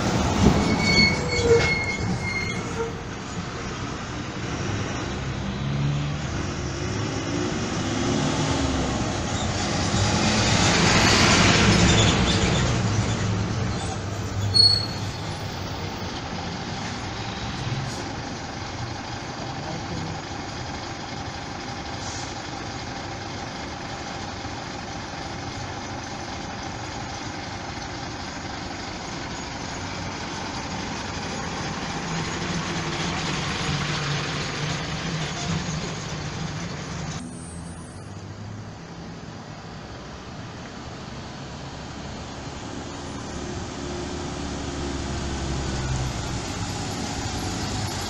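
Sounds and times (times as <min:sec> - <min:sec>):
bus diesel engine rumbling: 0:00.0 - 0:48.0
short sharp squeak: 0:00.4 - 0:03.0, 0:11.7 - 0:15.6.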